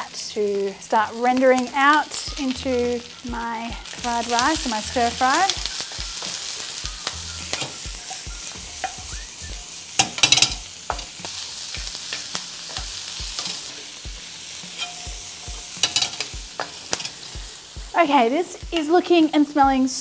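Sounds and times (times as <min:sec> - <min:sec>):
food sizzling in a wok: 0:00.0 - 0:20.0
spatula scraping a wok: 0:03.8 - 0:17.7.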